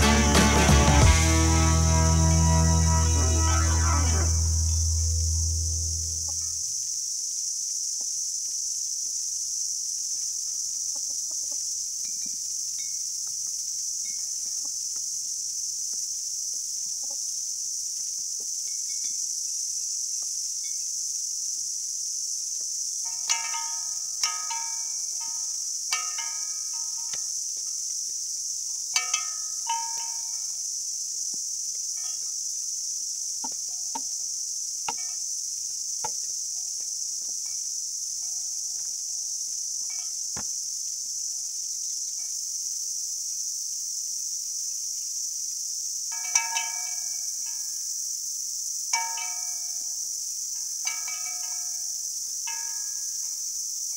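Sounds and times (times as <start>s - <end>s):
high insect chirring: 0.0s - 53.9s
hens pecking glass bottles and bells: 23.0s - 27.7s, 28.9s - 30.6s, 50.8s - 53.4s
sheet-metal cowbells clanging: 29.0s - 30.5s.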